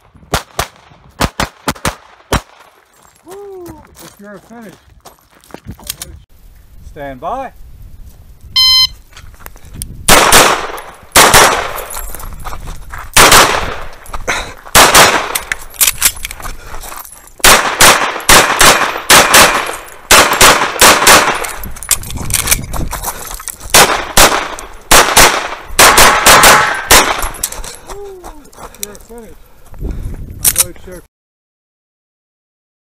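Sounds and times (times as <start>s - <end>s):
pistol shots: 0.3s - 2.6s, 10.1s - 11.9s, 13.2s - 13.9s, 14.7s - 15.5s, 17.4s - 21.6s, 23.7s - 27.4s.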